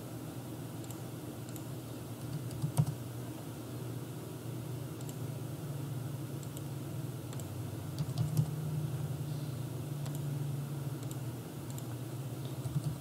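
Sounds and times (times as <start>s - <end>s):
steady low hum: 0.0s - 13.0s
keyboard key presses: 1.5s - 3.0s, 7.3s - 8.5s, 12.6s - 13.0s
mouse clicks: 11.0s - 11.9s.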